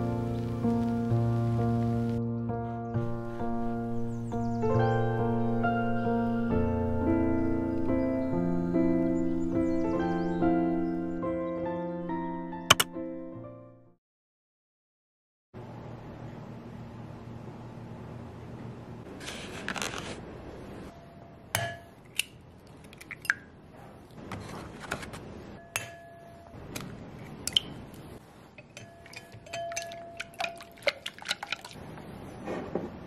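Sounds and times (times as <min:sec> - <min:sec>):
papery rustle: 0:19.2 - 0:20.2, 0:24.3 - 0:25.3
clinks against ceramic bowl: 0:25.6 - 0:26.6, 0:28.6 - 0:31.6
whisk beating eggs: 0:29.4 - 0:31.8.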